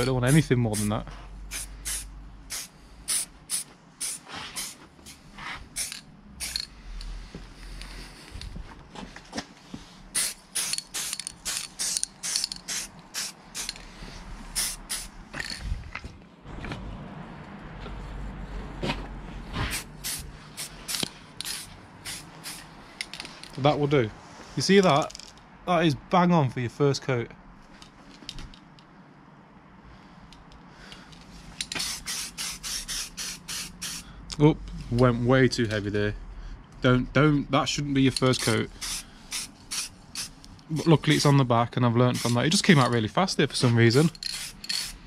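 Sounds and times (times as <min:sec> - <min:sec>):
aerosol spray hissing bursts: 0:01.5 - 0:06.7, 0:10.1 - 0:13.8, 0:14.5 - 0:15.2, 0:19.7 - 0:22.7, 0:31.7 - 0:34.0, 0:38.7 - 0:40.4, 0:42.2 - 0:42.7.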